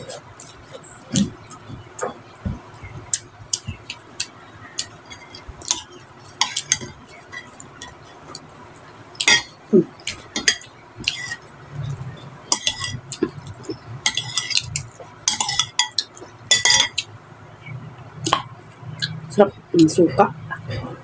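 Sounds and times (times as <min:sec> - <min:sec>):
metal spoon clinking on bowl: 0:09.2 - 0:11.4, 0:12.5 - 0:17.1.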